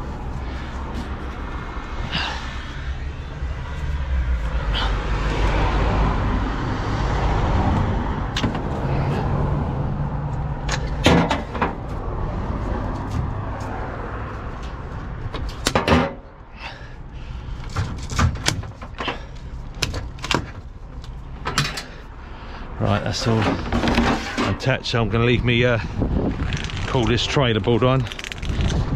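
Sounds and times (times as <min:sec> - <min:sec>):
metallic clunks and knocks: 0:10.6 - 0:11.8, 0:15.3 - 0:16.3, 0:21.3 - 0:22.0.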